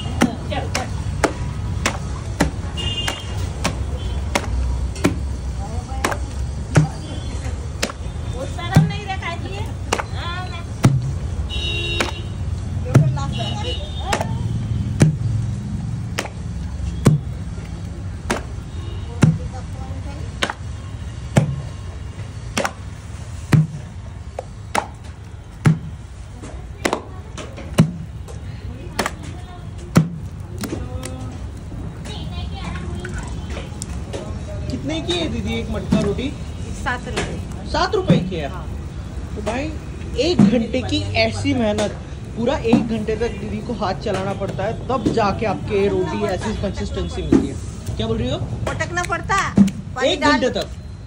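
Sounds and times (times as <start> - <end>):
wet dough slapping on metal plate: 0.1 - 21.7, 22.4 - 26.1, 26.8 - 28.2, 28.8 - 31.3, 48.8 - 49.9
dough slapped on metal plate: 0.2 - 5.3, 7.8 - 8.1, 9.8 - 10.2, 12.0 - 12.3, 16.1 - 17.3, 18.2 - 18.6, 20.4 - 20.7, 22.5 - 22.9, 24.4 - 25.0, 26.8 - 27.1.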